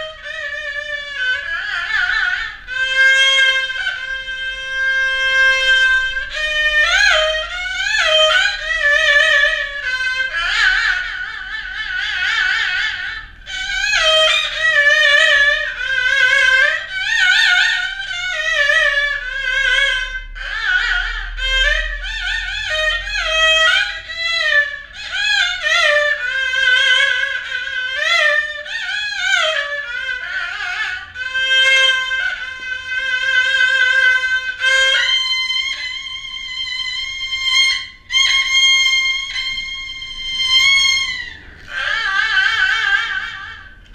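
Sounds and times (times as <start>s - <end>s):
bowed fiddle melody: 0.0s - 43.9s.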